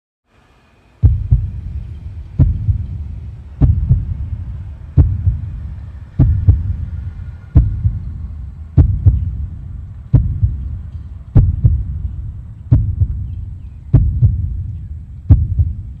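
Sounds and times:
deep heartbeat-like thuds: 1.0s - 16.0s
steady low rumble: 1.0s - 16.0s.

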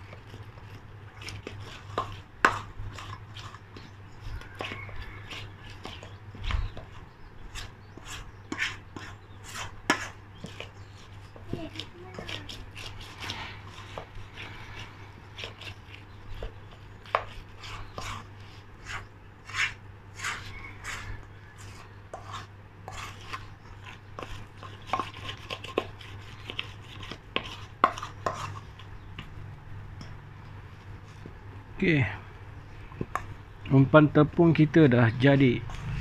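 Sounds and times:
metal spoon scraping steel bowl: 35.4s - 36.0s.

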